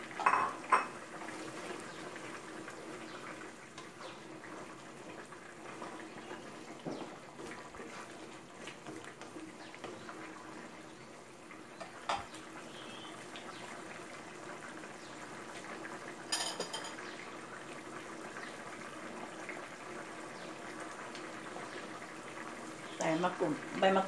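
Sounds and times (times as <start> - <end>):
curry bubbling in a pot: 0.0 - 24.0
wooden spatula stirring: 3.7 - 10.3
knock against a pot: 6.8 - 7.1.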